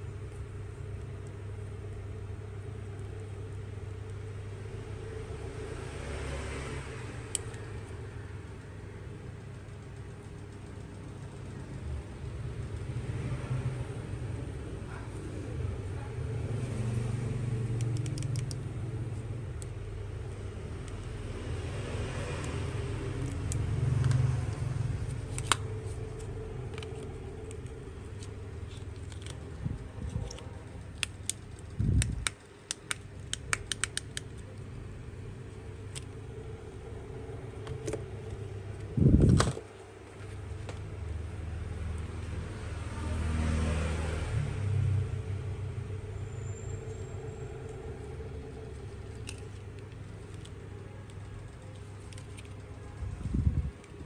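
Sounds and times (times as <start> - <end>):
small clicks and taps: 17.8 - 18.6.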